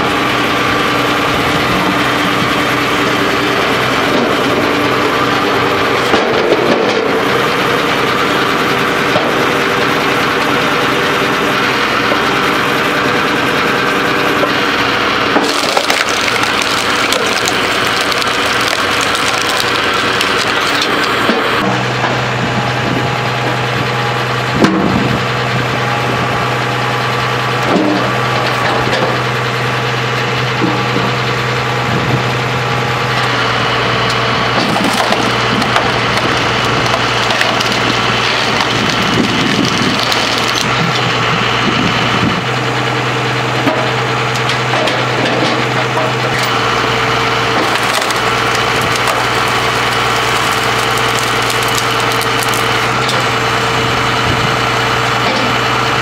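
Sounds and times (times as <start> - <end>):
tractor engine humming: 0.0 - 56.0
wood cracking and splintering: 0.1 - 26.2, 27.5 - 42.8, 43.4 - 56.0.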